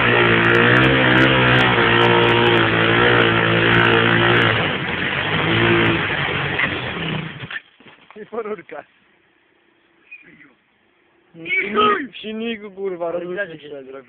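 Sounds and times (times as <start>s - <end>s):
quad bike engine revving: 0.0s - 7.6s
wheel spinning in loose dirt: 0.0s - 8.2s.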